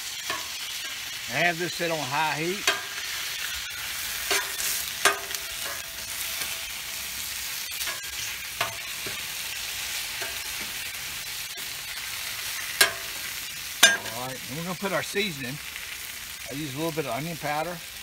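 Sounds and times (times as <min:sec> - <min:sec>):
metal spatula scraping steel: 0:00.0 - 0:01.3, 0:02.6 - 0:14.2
potatoes sizzling on griddle: 0:00.0 - 0:18.0.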